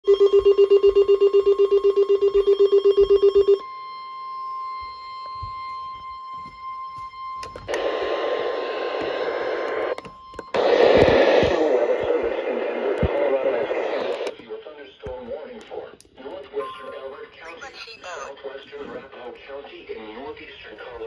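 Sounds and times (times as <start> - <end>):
rapid alarm beeping: 0.0 - 12.5
steady high warning tone: 0.1 - 14.4
radio static hiss: 7.7 - 9.9, 10.6 - 21.0.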